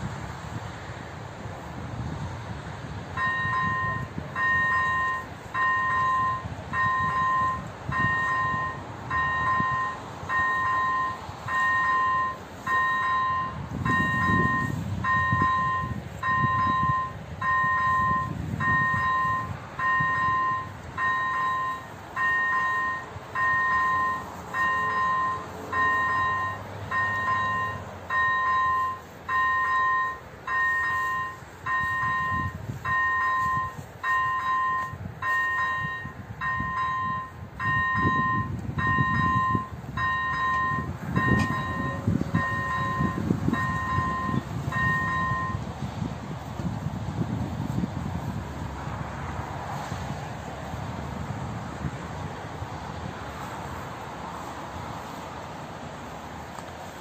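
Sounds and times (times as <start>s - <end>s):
level crossing bell dinging: 3.2s - 45.6s.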